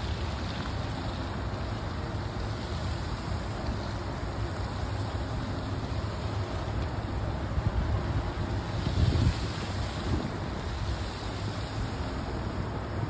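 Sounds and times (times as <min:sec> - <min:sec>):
wind buffeting microphone: 0:07.2 - 0:13.0.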